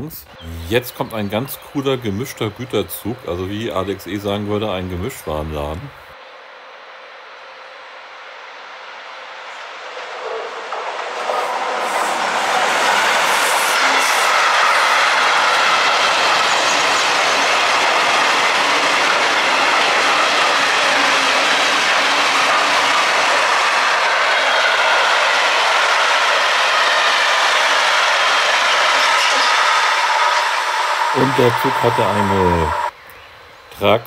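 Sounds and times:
train wheels rolling on rail: 8.6s - 33.0s.

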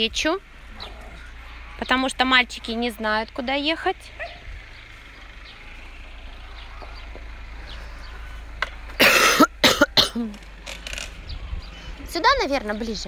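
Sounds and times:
person coughing: 9.0s - 10.3s.

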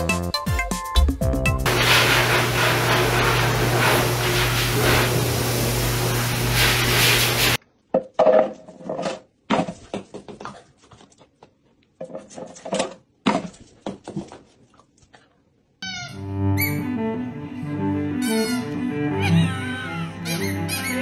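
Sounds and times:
pet dryer blowing: 1.7s - 7.6s.

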